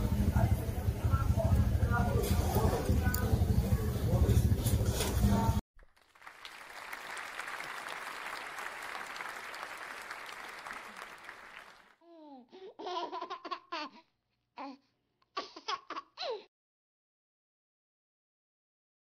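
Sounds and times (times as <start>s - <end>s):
applause: 5.8s - 12.0s.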